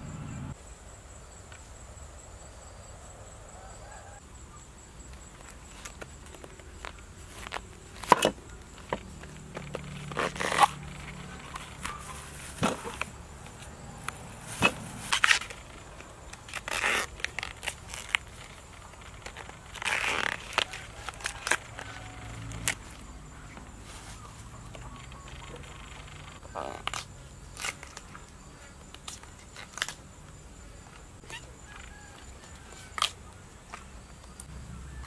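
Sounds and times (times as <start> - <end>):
plant bracts snapping and crackling: 5.2 - 28.3, 28.9 - 30.1, 32.9 - 34.5
rustling and tearing: 5.4 - 28.2, 29.0 - 30.0.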